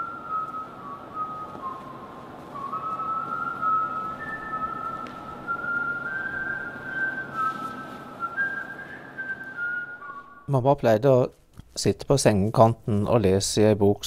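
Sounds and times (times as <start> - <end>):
person whistling a tune: 0.0 - 10.5
background hiss: 0.0 - 14.0.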